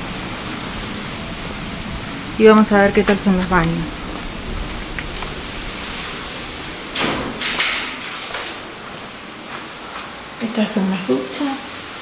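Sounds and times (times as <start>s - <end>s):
wind on microphone: 0.0s - 8.1s.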